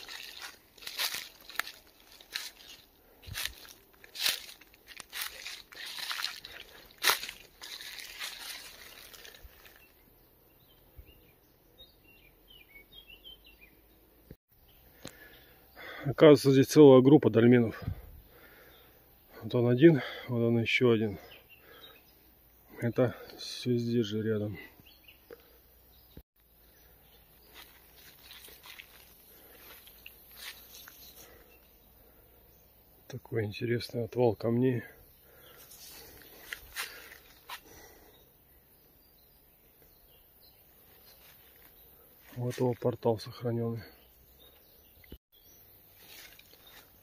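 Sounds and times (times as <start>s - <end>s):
footsteps rustling in leaf litter: 0.0s - 9.9s, 27.4s - 31.2s, 35.6s - 37.8s, 45.9s - 47.0s
soft crackles: 0.0s - 9.9s
bird chirping: 0.0s - 16.6s, 18.0s - 47.0s.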